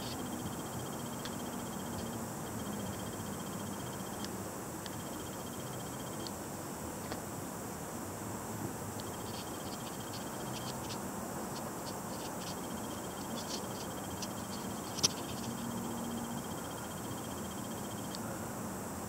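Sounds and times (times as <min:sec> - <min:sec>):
steady hiss: 0:00.0 - 0:19.0
frogs chirping: 0:09.0 - 0:18.4.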